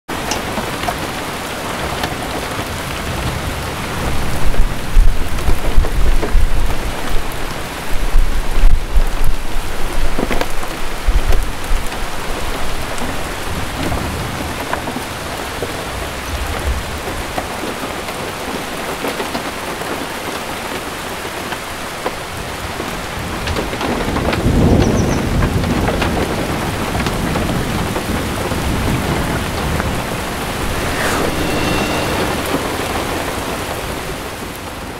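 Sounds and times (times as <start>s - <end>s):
steady rain: 0.1s - 34.9s
thunder rumbling: 28.7s - 34.0s.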